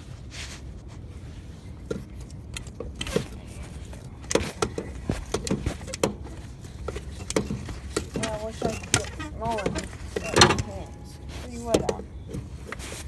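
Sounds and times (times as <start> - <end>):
floor jack clanking and clicking: 4.2 - 12.5.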